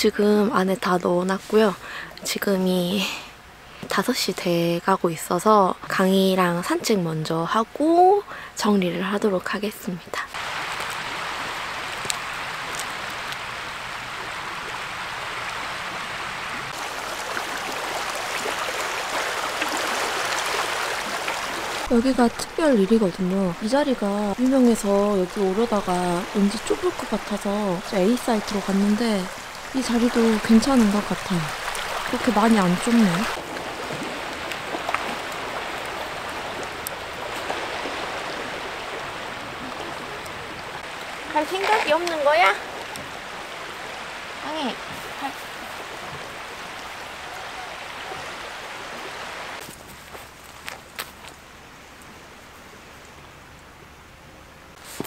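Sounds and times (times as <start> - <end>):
small waves on pebble shore: 10.3 - 51.2.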